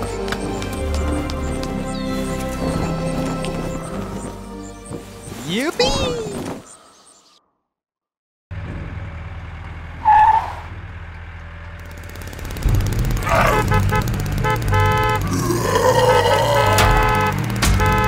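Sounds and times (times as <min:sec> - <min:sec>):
toy engine sound effect: 0:12.6 - 0:18.0.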